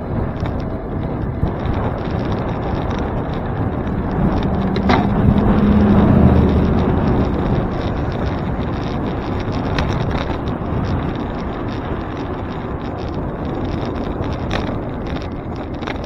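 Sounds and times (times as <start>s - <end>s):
bike clicks and rattles: 0.0s - 16.0s
road noise: 0.0s - 16.0s
wind rushing over microphone: 0.0s - 16.0s.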